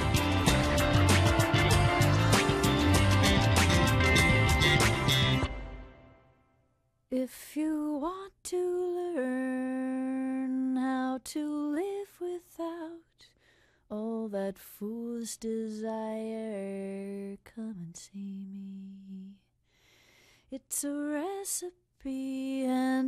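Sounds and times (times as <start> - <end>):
woman singing unaccompanied: 7.1 - 13.3, 13.9 - 19.5, 20.5 - 23.0.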